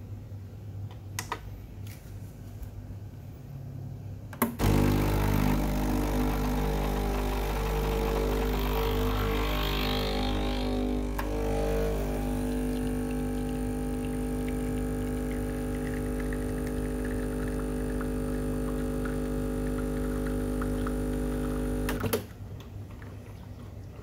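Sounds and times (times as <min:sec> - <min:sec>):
espresso machine pump humming: 0:04.6 - 0:22.1.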